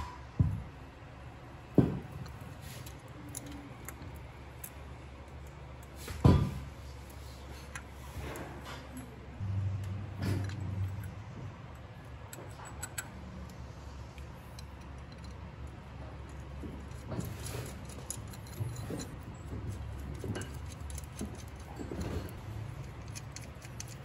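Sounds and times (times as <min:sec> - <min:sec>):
metal chain clinking and rattling: 0:16.2 - 0:24.0.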